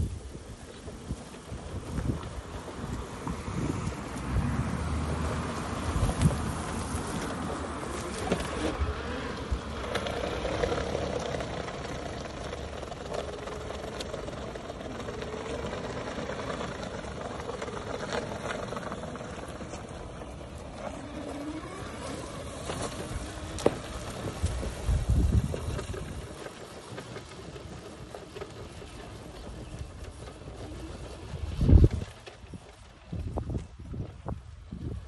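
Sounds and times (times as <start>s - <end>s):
tyres rumbling and rushing air: 0.0s - 35.0s
faint wavering motor whine: 6.9s - 32.1s.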